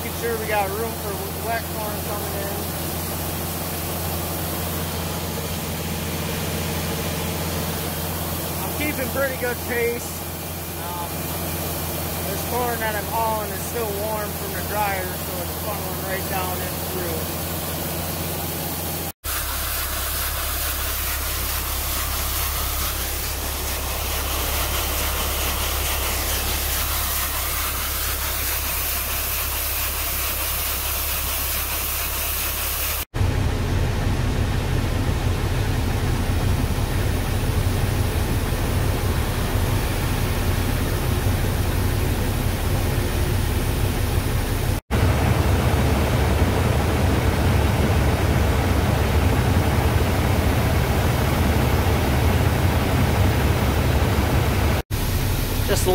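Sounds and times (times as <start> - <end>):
diesel truck engine rumbling: 0.0 - 19.1, 33.2 - 55.9
low machine hum: 0.0 - 30.9, 33.2 - 55.9.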